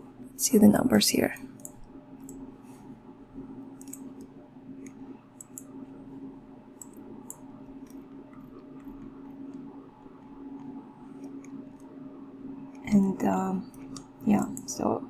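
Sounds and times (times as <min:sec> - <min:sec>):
steady low hum: 0:00.0 - 0:15.0
computer mouse clicking: 0:01.4 - 0:02.4, 0:03.8 - 0:05.7, 0:06.7 - 0:11.9, 0:13.7 - 0:14.8.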